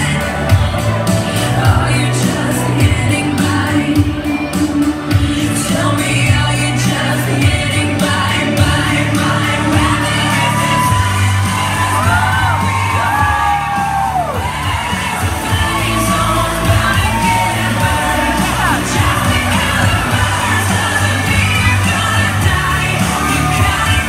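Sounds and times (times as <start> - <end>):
amplified pop song with singing: 0.0 - 24.0
audience cheering and whooping: 9.7 - 24.0.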